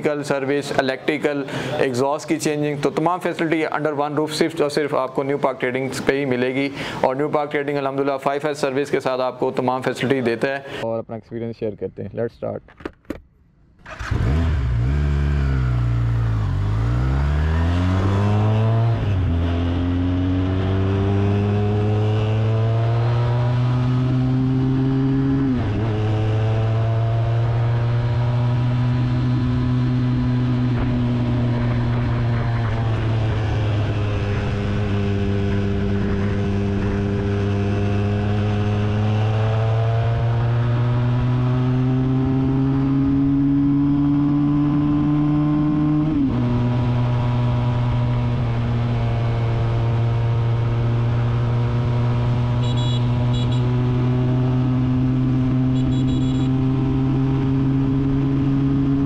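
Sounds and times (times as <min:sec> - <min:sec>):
motorcycle engine under way: 0:13.8 - 0:59.0.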